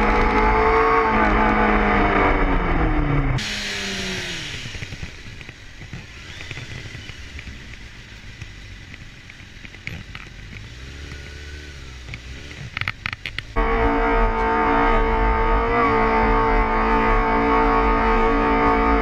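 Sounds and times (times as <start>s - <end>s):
motorcycle engine slowing down: 0.0s - 13.5s
another motorcycle engine: 0.0s - 19.0s.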